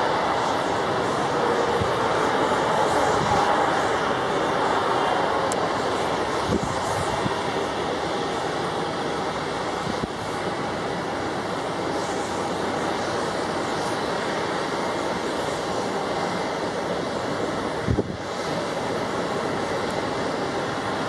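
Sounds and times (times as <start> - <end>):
jet engines taxiing: 0.0 - 21.0.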